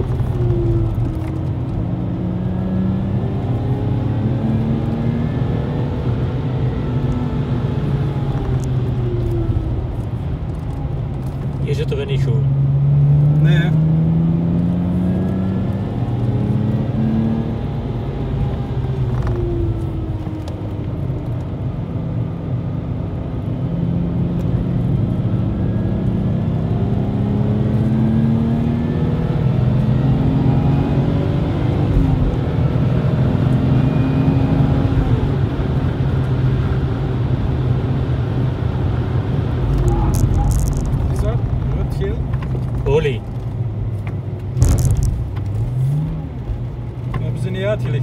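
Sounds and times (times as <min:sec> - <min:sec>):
car engine revving: 0:00.0 - 0:48.0
road noise: 0:00.0 - 0:48.0.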